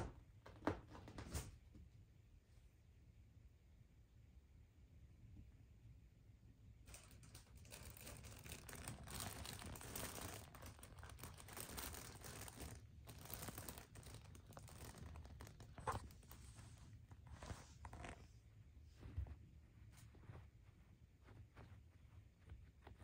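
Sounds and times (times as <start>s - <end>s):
fabric tunnel crinkling: 6.9s - 23.0s.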